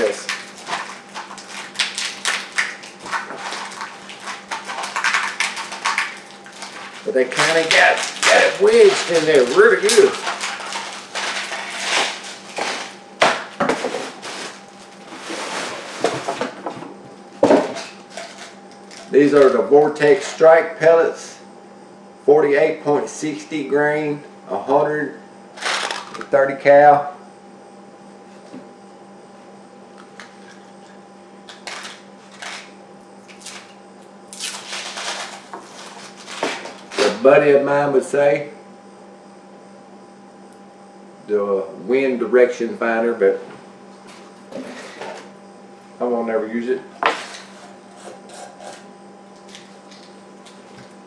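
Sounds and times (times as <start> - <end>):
wrapping crinkling: 0.0 - 13.0, 34.3 - 37.2
electrical hum: 0.0 - 51.0.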